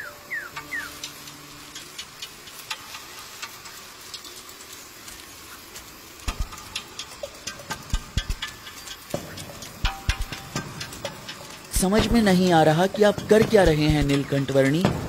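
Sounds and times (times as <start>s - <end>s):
irregular clicks and ticks: 0.0s - 15.0s.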